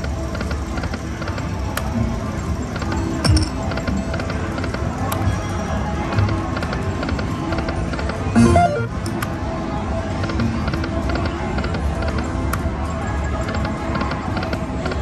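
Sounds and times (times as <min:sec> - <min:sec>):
slot machine electronic music: 0:08.3 - 0:09.2
slot machine jingle: 0:08.3 - 0:09.2
casino din: 0:08.4 - 0:09.2.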